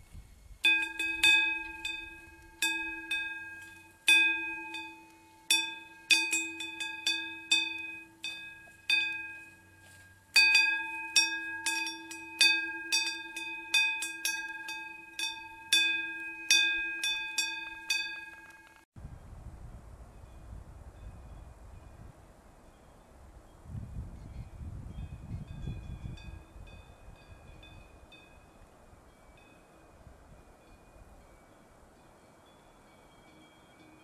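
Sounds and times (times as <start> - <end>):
cowbell clanking: 0.6 - 18.8.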